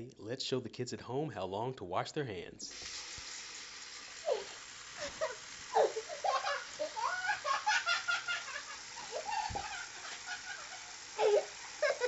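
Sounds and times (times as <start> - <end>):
cartoon bird laughing: 4.3 - 12.0.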